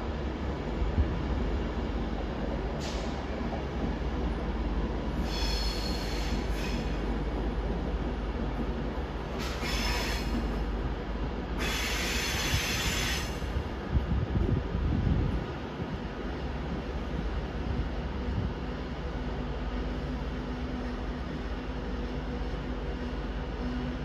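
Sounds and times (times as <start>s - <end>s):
low train rumble: 0.0s - 24.0s
train wheels squealing: 5.2s - 7.0s, 9.4s - 10.4s, 11.6s - 13.4s.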